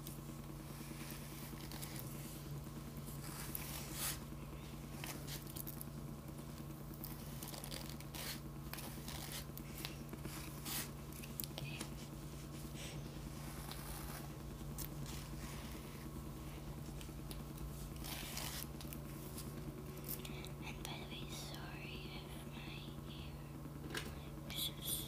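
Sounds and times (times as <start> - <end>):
steady low hum: 0.0 - 25.0
hairbrush strokes through hair: 3.0 - 4.3, 7.1 - 11.0, 11.8 - 14.4, 17.7 - 19.5.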